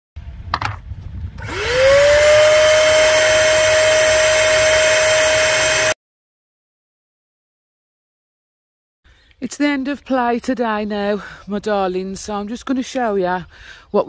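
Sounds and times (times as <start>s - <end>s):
vacuum cleaner motor whining: 1.4s - 6.0s.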